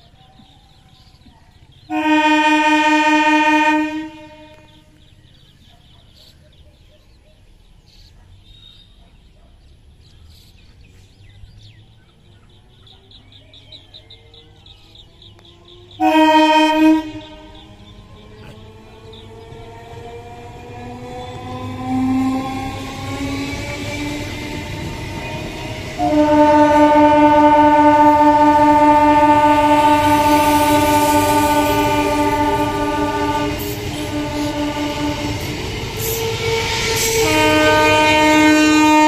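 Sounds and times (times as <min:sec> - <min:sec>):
train horn blasts: 0:01.9 - 0:05.0, 0:15.9 - 0:39.0
train running with whine: 0:11.6 - 0:39.0.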